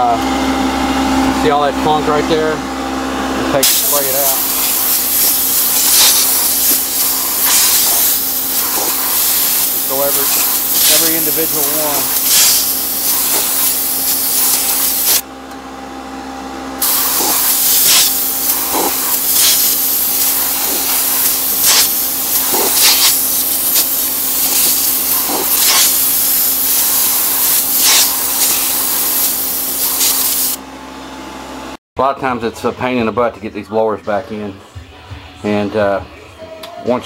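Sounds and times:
spray swishes: 0:03.6 - 0:15.2, 0:16.8 - 0:30.6
water spray hissing: 0:03.6 - 0:15.2, 0:16.8 - 0:30.6.

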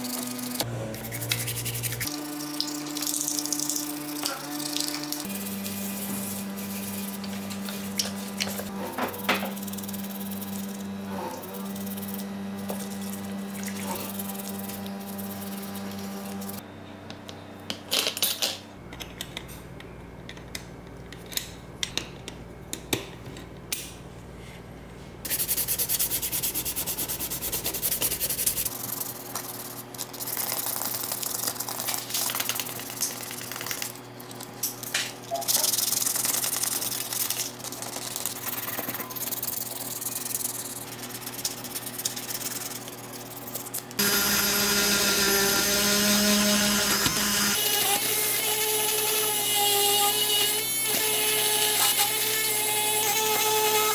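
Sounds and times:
sandpaper rubbing on metal: 0:00.0 - 0:02.1, 0:05.3 - 0:08.6, 0:13.9 - 0:16.4, 0:25.3 - 0:30.4, 0:35.4 - 0:43.7
toothbrush scrubbing in soapy water: 0:01.0 - 0:05.0.

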